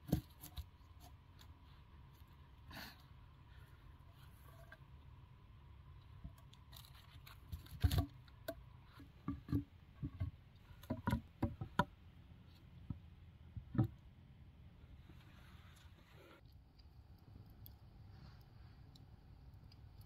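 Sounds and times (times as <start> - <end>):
wooden logs knocking: 9.2 - 11.9.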